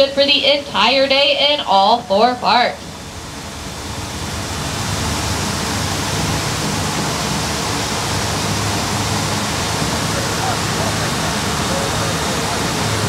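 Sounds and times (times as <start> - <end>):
low hum: 0.0 - 13.0
tyres hissing on wet pavement: 2.9 - 13.0.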